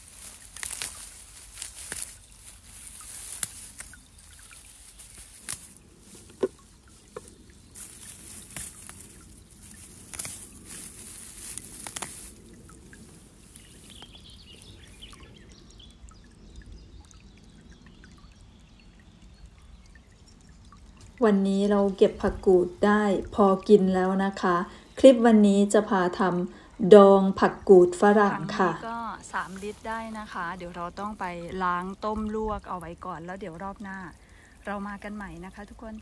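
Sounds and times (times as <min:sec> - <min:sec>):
dry fern litter rustling: 0:00.0 - 0:15.2, 0:28.4 - 0:35.8
fern stems snapping: 0:00.0 - 0:15.2.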